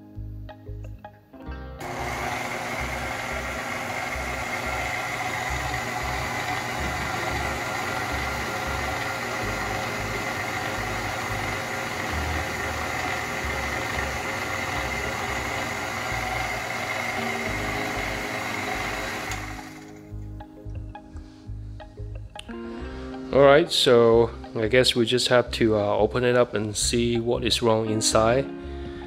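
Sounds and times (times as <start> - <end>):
stand mixer motor running: 1.8 - 20.0.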